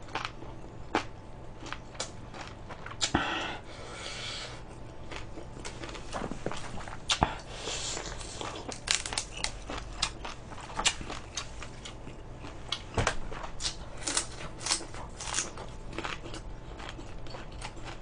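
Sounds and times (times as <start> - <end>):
chewing and biting food: 0.0 - 3.2, 4.5 - 18.0.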